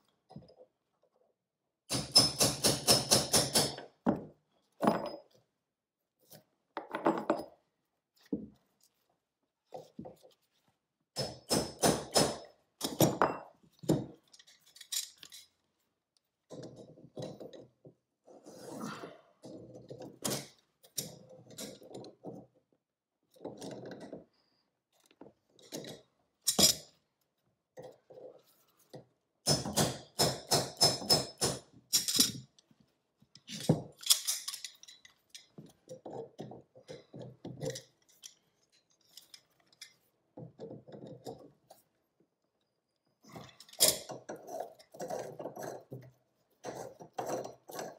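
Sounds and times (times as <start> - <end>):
tools scraping and clinking on metal: 12.8 - 15.7, 33.3 - 41.9, 43.3 - 47.9.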